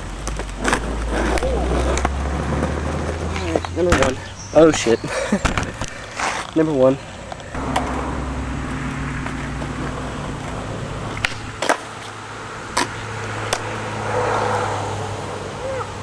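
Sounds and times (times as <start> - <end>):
skateboard wheels rolling on asphalt: 0.0 - 16.0
skateboard wooden clacks: 5.4 - 6.6.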